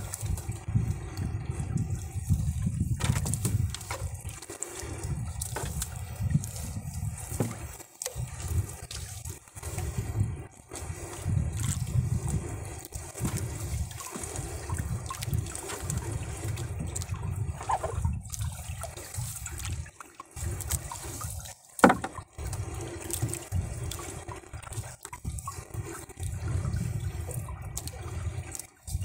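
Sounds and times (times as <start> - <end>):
water running and dripping: 0.0 - 29.0
wet fishing net hauled over boat: 0.0 - 29.0.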